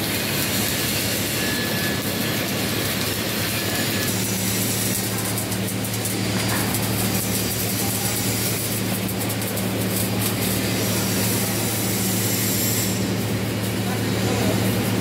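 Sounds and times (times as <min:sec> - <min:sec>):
welding arc crackling hiss: 0:00.0 - 0:15.0.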